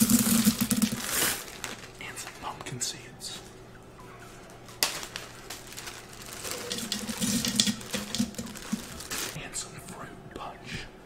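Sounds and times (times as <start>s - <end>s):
seeds rattling into plastic jar: 0.0s - 1.9s, 4.8s - 9.4s
plastic bag crinkling: 0.0s - 2.8s, 4.3s - 9.4s.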